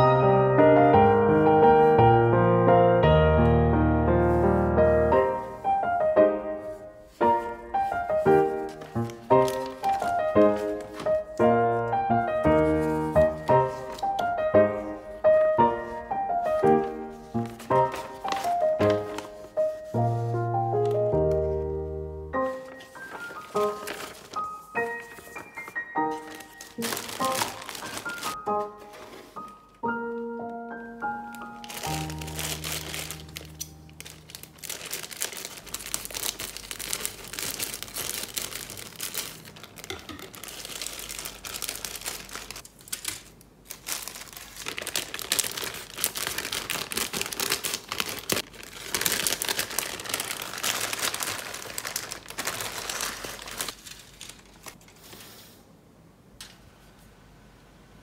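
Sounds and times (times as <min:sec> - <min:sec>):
background music: 0:00.0 - 0:35.2
plastic bags crinkling: 0:06.6 - 0:21.6, 0:22.4 - 0:29.7, 0:31.2 - 0:55.0.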